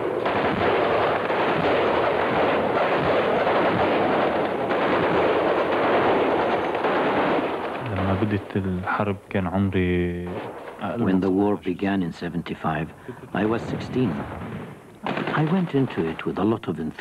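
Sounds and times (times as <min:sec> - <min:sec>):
dense rifle gunfire: 0:00.0 - 0:08.5, 0:10.2 - 0:11.0, 0:13.4 - 0:16.2.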